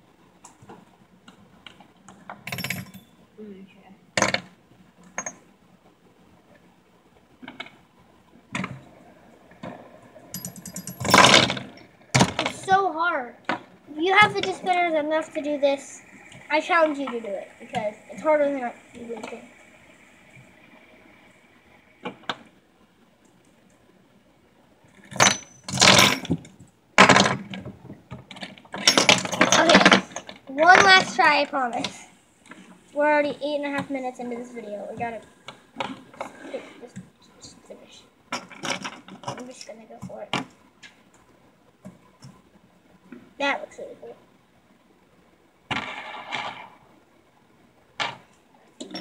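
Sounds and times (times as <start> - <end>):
fidget spinners clacking: 13.9 - 21.6.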